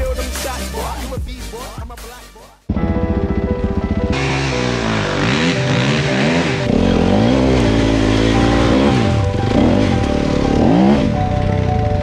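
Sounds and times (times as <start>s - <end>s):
background music: 0.0s - 12.0s
dirt bike engine revving: 2.8s - 11.2s.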